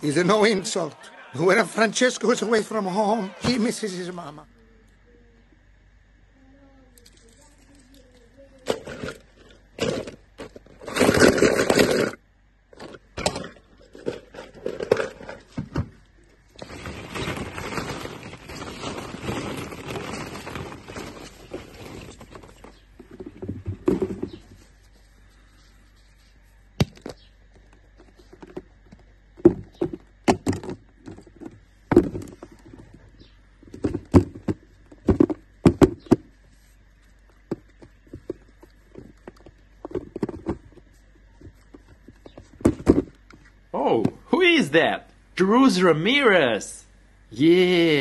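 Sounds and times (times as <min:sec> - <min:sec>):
plastic balls clattering: 0:07.0 - 0:24.7, 0:26.9 - 0:33.0, 0:33.6 - 0:36.3, 0:37.2 - 0:43.4.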